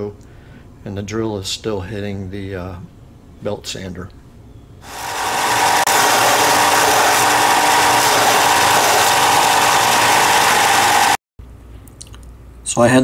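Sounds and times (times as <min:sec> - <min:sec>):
belt sander grinding metal: 0:04.8 - 0:11.2.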